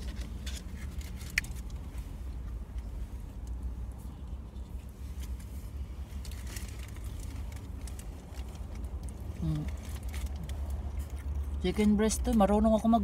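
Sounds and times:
food packaging rustling: 0.0 - 2.4, 6.1 - 11.3.

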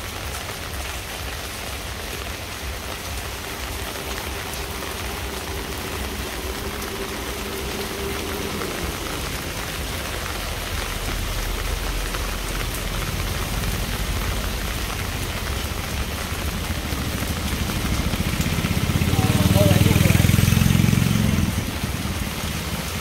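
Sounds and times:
heavy rain on hard surfaces: 0.0 - 23.0
low rumble: 2.7 - 19.0.

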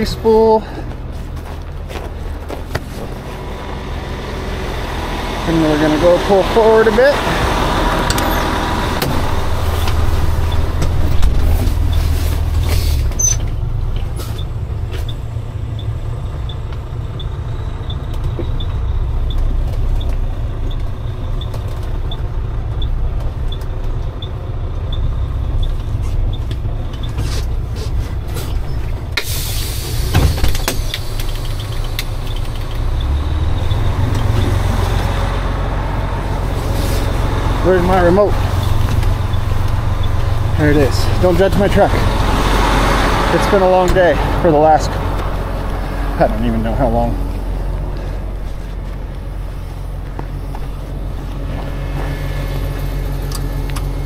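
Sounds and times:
truck engine running: 0.0 - 54.0
hiss: 29.2 - 32.0.

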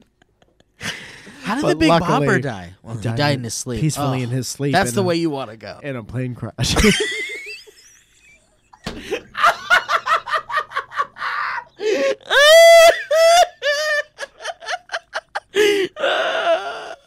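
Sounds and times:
man laughing: 0.1 - 2.4, 6.7 - 8.1, 8.8 - 17.0.

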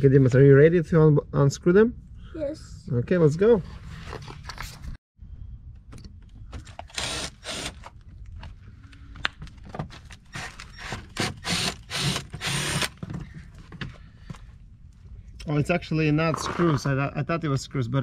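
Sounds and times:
impact driver bursts: 6.9 - 7.8, 10.3 - 13.0.

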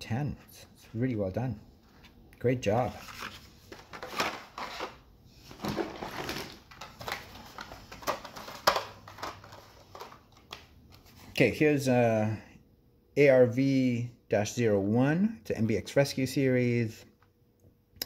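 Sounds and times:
plastic packaging crinkling: 2.9 - 10.7.

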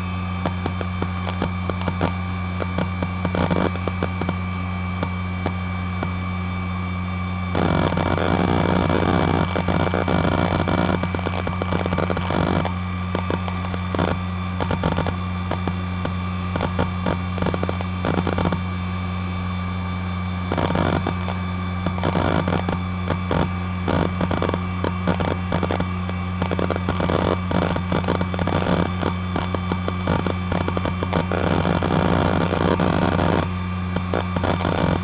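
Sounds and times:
hard drive heads clicking: 0.0 - 4.4, 7.6 - 18.6, 20.5 - 35.0
hard drive humming: 0.0 - 35.0.

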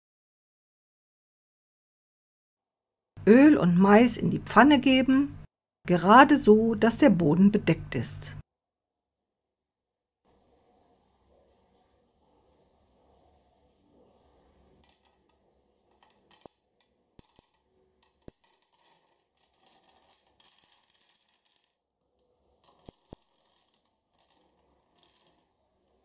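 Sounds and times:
popcorn kernels rattling into pan: 14.0 - 26.0
kernels clicking on pan: 14.4 - 26.0.

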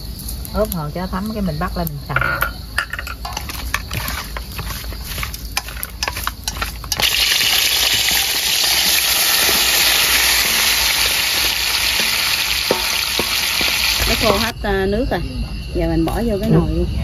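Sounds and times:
utensil scraping steel bowl: 2.2 - 14.5
meat sizzling in hot oil: 3.3 - 14.6.

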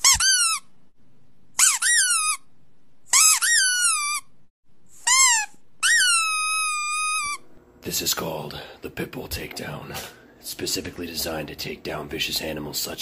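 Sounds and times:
high-pitched squeaks: 0.0 - 0.7, 1.6 - 2.5, 3.1 - 4.3, 5.0 - 7.5.

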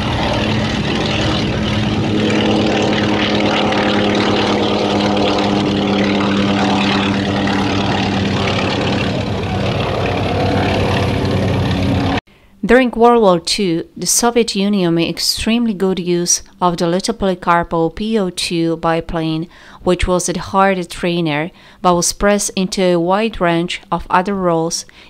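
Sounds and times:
propeller plane engine drone: 0.0 - 12.6.

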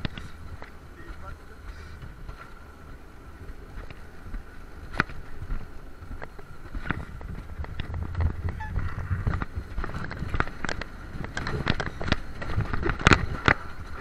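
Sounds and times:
sled rumbling on steel rails: 0.0 - 14.0
wind rush on microphone: 0.0 - 14.0
sharp clacks and rattles: 4.9 - 14.0.

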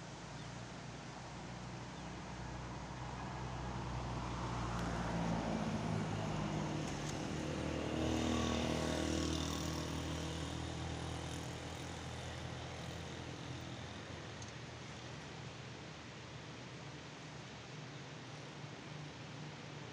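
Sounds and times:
vehicle engine passing by: 3.3 - 14.0.

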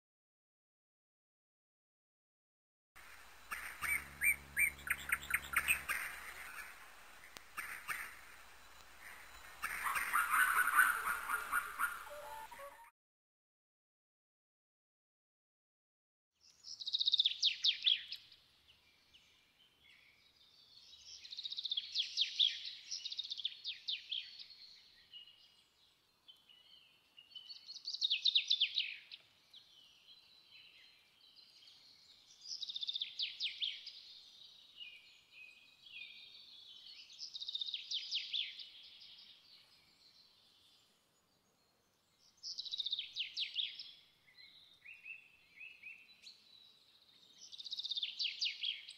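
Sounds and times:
bird singing trilled phrases: 3.4 - 12.9, 26.4 - 48.9.

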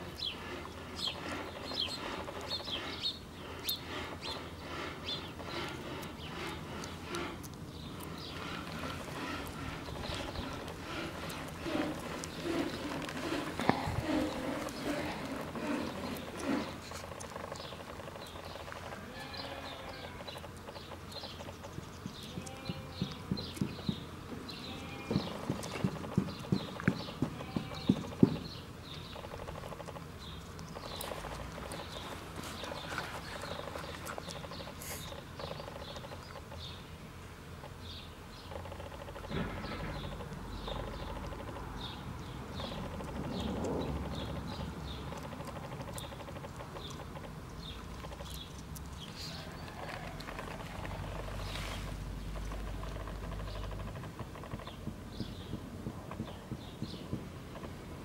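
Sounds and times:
small birds chirping: 0.0 - 58.0
rhythmic knocking: 25.1 - 28.4.

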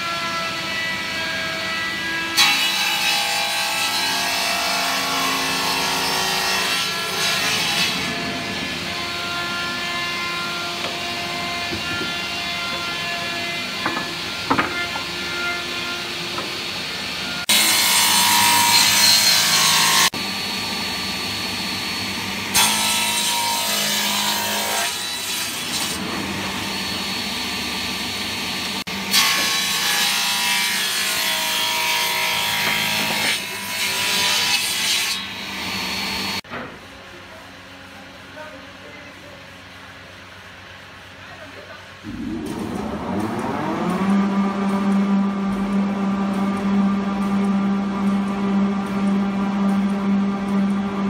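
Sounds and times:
table saw running: 2.4 - 36.4, 42.0 - 51.0
saw blade cutting wood: 28.8 - 36.5.

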